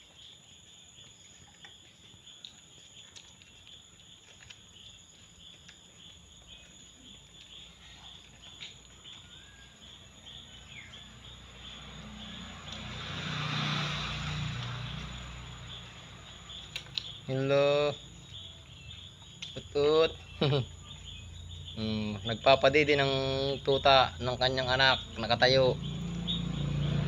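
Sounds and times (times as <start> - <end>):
small clicks: 16.6 - 17.2.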